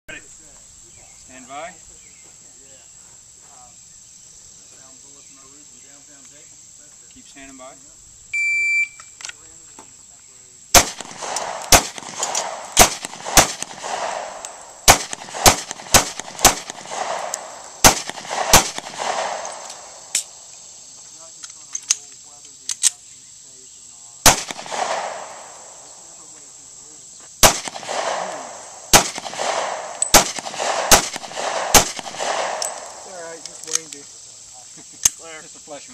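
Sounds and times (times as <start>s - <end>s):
pistol shots with echo: 10.7s - 20.4s, 24.2s - 26.0s, 27.4s - 33.4s.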